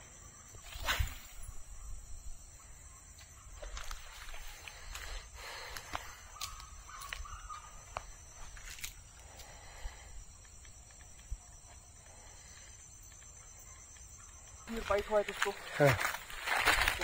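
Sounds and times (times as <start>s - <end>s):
faint open-air ambience: 0.0s - 17.0s
bird wavering call: 6.3s - 8.2s.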